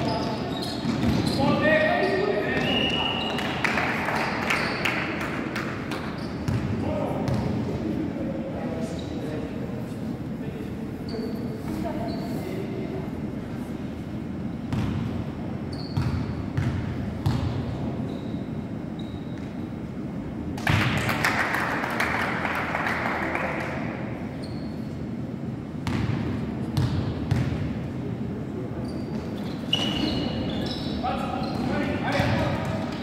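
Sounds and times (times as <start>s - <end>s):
basketball bouncing on gym floor: 0.0s - 1.4s, 5.9s - 7.6s, 14.7s - 15.2s, 15.8s - 17.9s, 25.8s - 27.9s.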